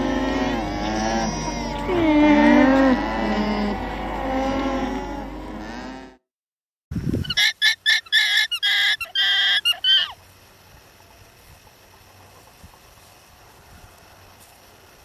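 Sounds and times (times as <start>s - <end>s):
alpacas calling: 0.0s - 6.1s, 7.2s - 10.2s
high-pitched honking calls: 0.0s - 6.2s, 7.3s - 10.2s.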